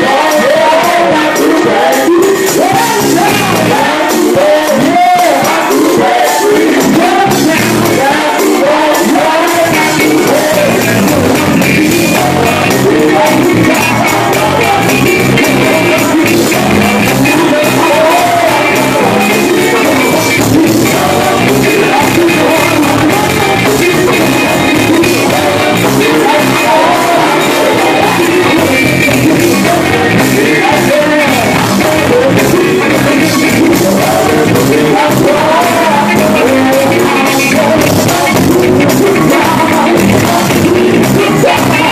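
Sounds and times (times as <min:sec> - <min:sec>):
backing singers: 0:00.0 - 0:41.9
drums: 0:00.0 - 0:41.9
electric guitar: 0:00.0 - 0:41.9
person singing and shouting: 0:00.0 - 0:41.9.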